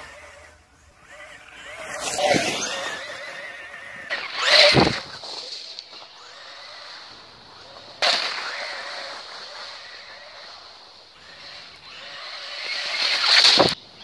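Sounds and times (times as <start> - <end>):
rc truck motor whine and tyres: 0.0 - 14.0.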